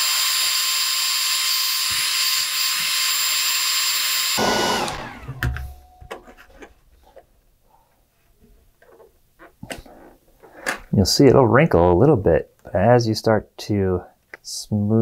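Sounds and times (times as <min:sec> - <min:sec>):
hair dryer running: 0:00.0 - 0:05.8.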